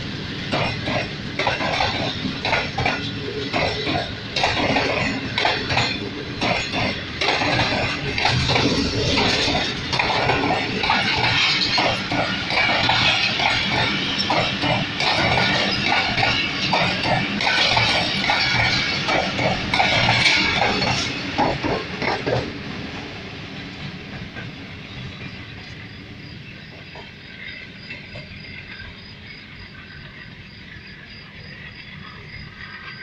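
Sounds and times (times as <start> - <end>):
train wheels clacking over rail joints: 0.0 - 25.9.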